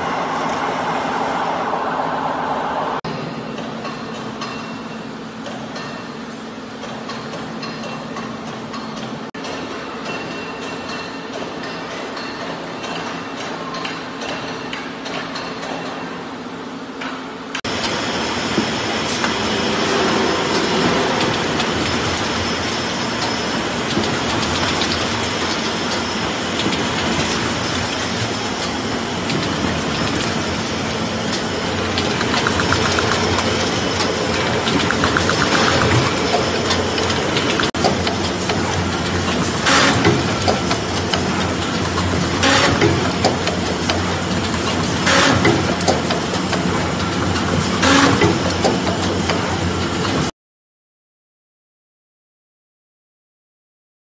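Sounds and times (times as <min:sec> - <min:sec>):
machine clattering: 0:20.5 - 0:50.2.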